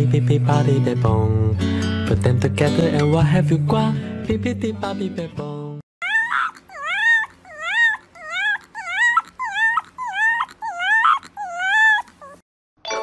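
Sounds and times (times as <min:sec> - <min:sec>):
puppy howling: 0:06.0 - 0:12.4.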